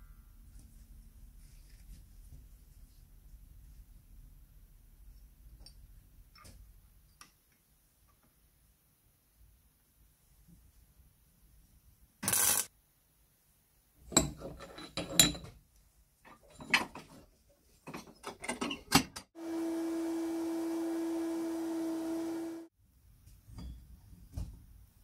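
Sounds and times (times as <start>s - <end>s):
spray can hissing: 12.2s - 12.7s.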